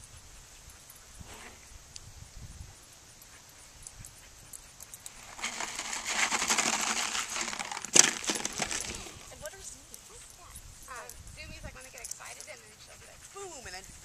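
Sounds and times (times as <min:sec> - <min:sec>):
bottle clattering on ground: 0:05.1 - 0:09.4
treats rattling in plastic bottle: 0:05.1 - 0:09.5.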